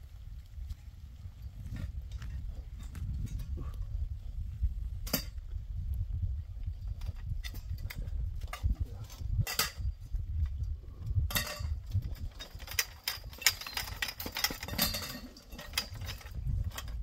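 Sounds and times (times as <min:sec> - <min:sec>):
metal tubes and poles knocking: 0:05.0 - 0:05.4, 0:06.9 - 0:17.0.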